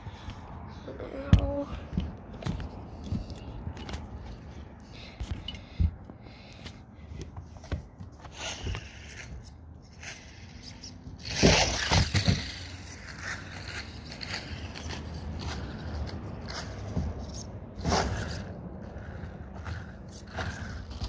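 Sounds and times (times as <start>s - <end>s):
rough scraping and knocks: 7.4s - 21.0s.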